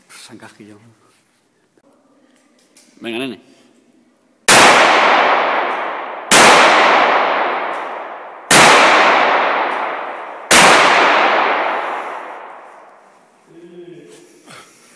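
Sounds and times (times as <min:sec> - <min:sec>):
revolver shots echoing: 0:04.5 - 0:13.1.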